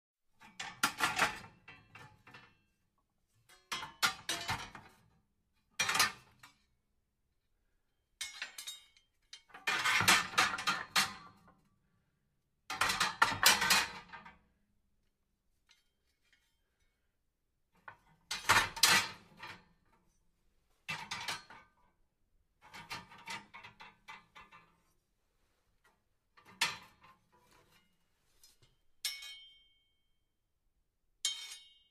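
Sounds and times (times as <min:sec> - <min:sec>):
metal fireplace tools clinking: 0:08.2 - 0:11.2, 0:29.0 - 0:29.8, 0:31.3 - 0:31.9.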